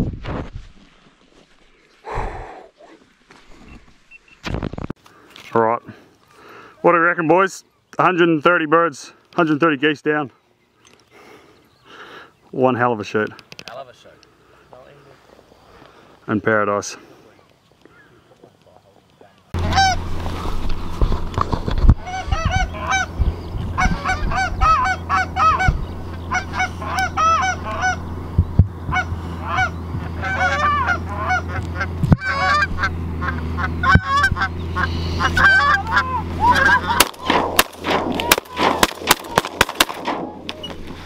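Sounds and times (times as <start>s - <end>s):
geese honking: 19.6s - 21.0s, 21.9s - 41.0s
low steady hum: 19.6s - 41.0s.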